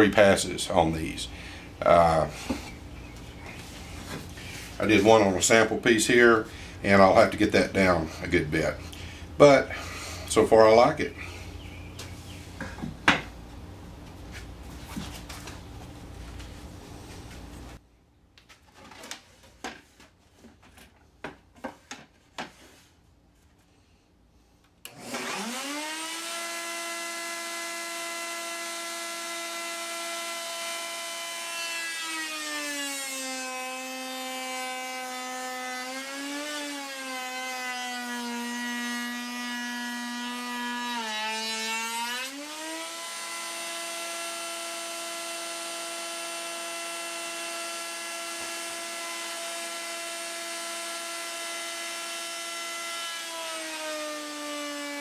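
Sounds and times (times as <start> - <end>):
router whining and cutting wood: 24.9 - 55.0.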